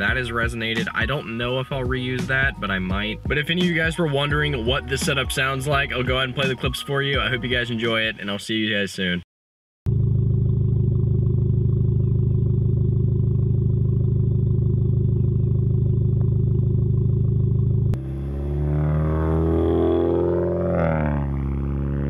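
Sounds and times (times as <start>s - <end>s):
car engine idling: 9.9s - 22.0s
car pulling away: 9.9s - 22.0s.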